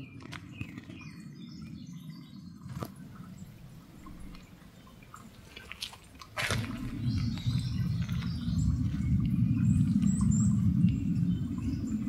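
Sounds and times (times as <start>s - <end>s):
steady low rumble: 1.1s - 12.0s
bird chirps: 6.6s - 12.0s.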